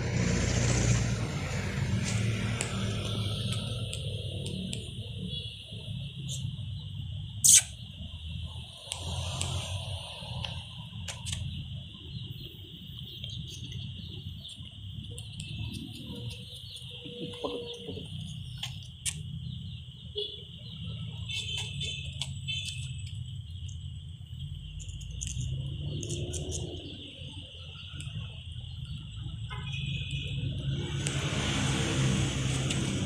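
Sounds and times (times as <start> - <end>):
high-pitched insect drone: 0.1 - 33.0
scattered clicks: 2.0 - 5.2, 8.7 - 9.8, 10.4 - 11.6, 14.4 - 19.3, 24.8 - 27.0.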